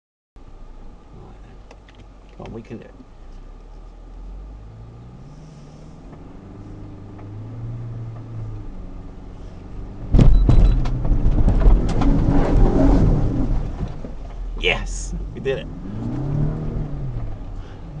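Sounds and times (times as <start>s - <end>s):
car engine pulling uphill: 0.4s - 18.0s
car jolting over ruts: 9.9s - 14.6s.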